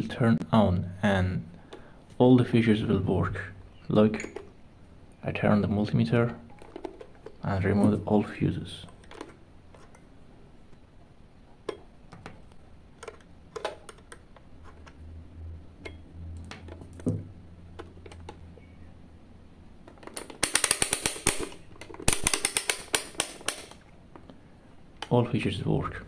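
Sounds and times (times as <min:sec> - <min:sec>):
rotary knob ratcheting clicks: 0:20.0 - 0:23.8.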